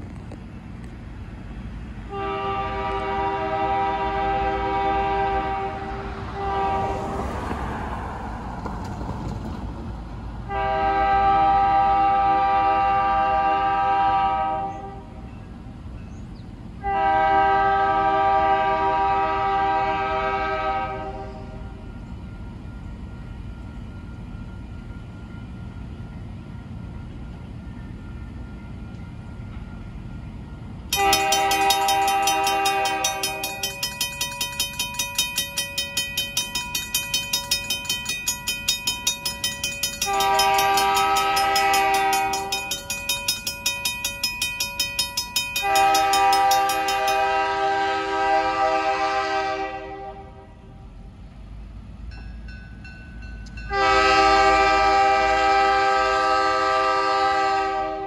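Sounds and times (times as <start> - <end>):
locomotive air horn blasts: 2.1 - 7.4, 10.5 - 15.2, 16.8 - 21.8, 31.0 - 35.9, 39.6 - 43.0, 45.6 - 50.8, 53.7 - 58.0
crossing warning bell ringing: 21.4 - 49.4, 52.0 - 57.0.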